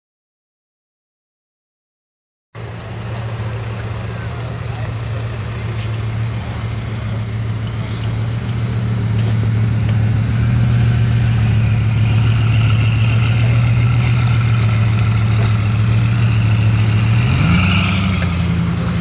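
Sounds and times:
car engine idling: 2.6 - 19.0.

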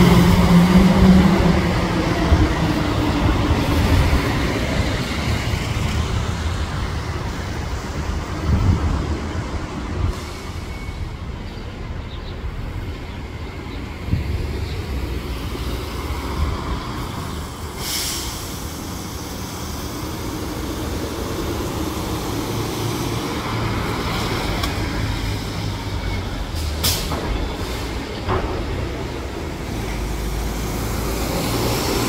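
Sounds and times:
bus engine rumbling: 0.0 - 32.0
city traffic: 0.0 - 32.0
air brake hiss: 10.1 - 11.0, 17.6 - 19.7.

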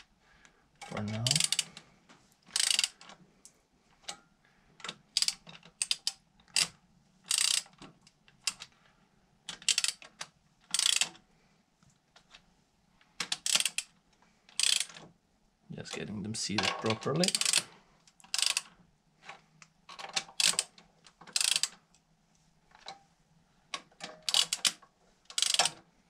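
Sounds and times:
ratchet wrench clicking: 1.1 - 1.7, 2.5 - 3.0, 5.2 - 6.7, 7.3 - 7.7, 9.5 - 10.0, 10.7 - 11.1, 13.4 - 13.9, 14.6 - 14.9, 17.2 - 17.6, 18.3 - 18.7, 21.4 - 21.8, 24.3 - 25.8.

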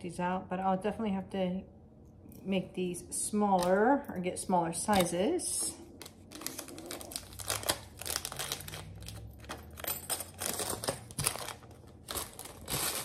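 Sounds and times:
packaging crinkling and rustling: 4.9 - 13.0.

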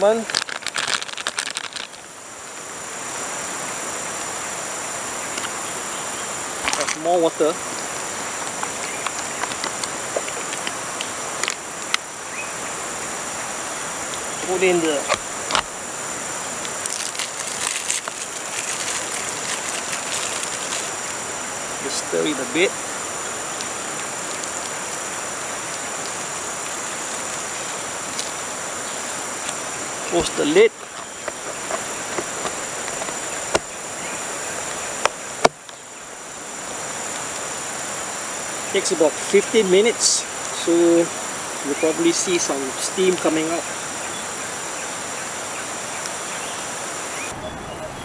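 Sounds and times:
light plastic crackling: 0.0 - 2.1, 6.6 - 7.2, 8.0 - 12.0, 16.6 - 21.2, 23.5 - 28.4
high drone of insects: 0.0 - 48.0
steady high hiss: 0.0 - 48.0.

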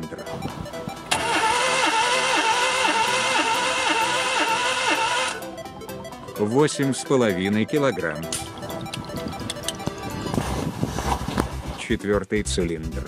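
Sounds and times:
starter motor cranking engine: 1.1 - 5.4.

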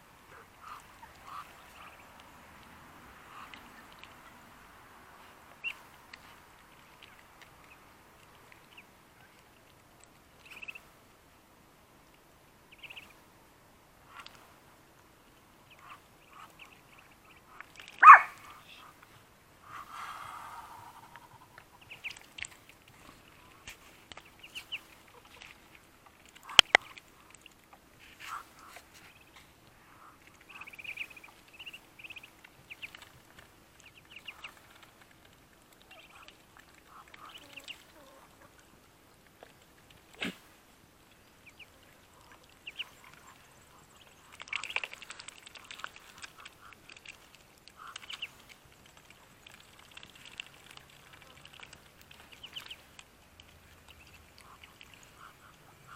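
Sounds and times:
ducklings peeping: 0.3 - 4.4, 10.4 - 10.9, 12.7 - 13.2, 15.6 - 19.0, 19.7 - 27.5, 28.2 - 38.7, 41.1 - 55.9
poultry calls: 17.5 - 18.4.

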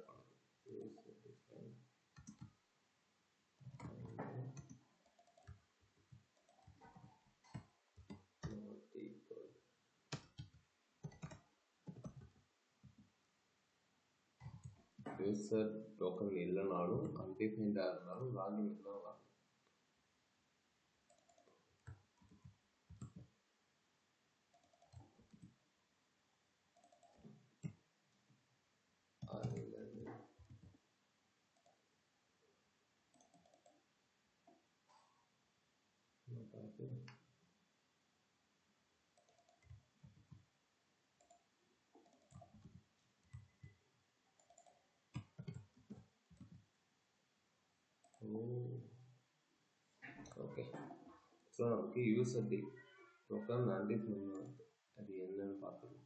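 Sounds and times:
computer mouse and keyboard clicks: 2.1 - 2.6, 3.6 - 8.6, 10.1 - 13.1, 14.4 - 15.2, 21.1 - 23.3, 24.5 - 25.6, 26.8 - 27.8, 29.2 - 30.7, 33.1 - 33.8, 39.2 - 40.5, 41.2 - 43.8, 44.4 - 46.7
mouse and keyboard clicks: 10.1 - 12.4, 24.5 - 25.5, 39.2 - 40.4.

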